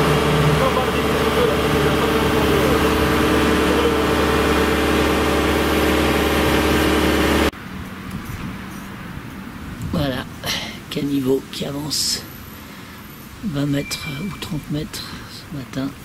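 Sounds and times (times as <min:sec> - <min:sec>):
diesel engine idling: 0:00.0 - 0:07.5.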